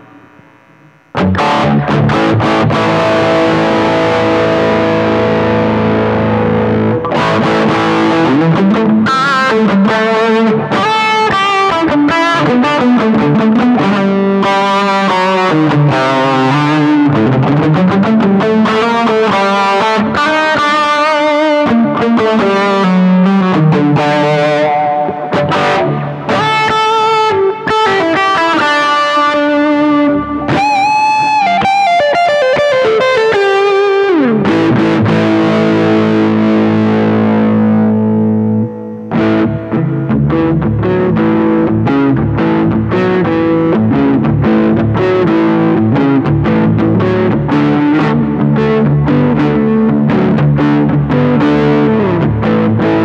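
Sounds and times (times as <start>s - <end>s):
distorted electric guitar: 0.0s - 53.0s.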